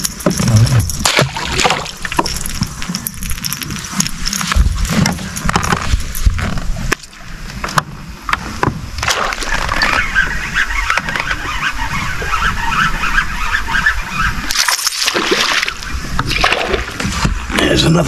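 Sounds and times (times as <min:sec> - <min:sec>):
knocks and clatter on boat: 0:00.0 - 0:11.6, 0:15.2 - 0:17.8
water sloshing against boat: 0:00.0 - 0:18.0.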